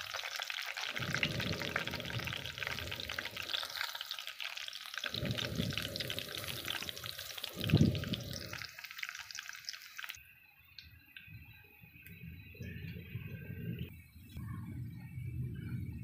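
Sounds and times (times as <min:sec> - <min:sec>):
garlic sizzling in hot oil: 0:00.0 - 0:10.2.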